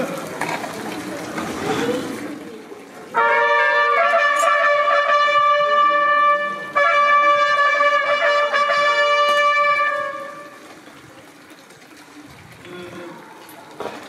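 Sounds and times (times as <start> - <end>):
brass group playing held chords: 3.1 - 10.7.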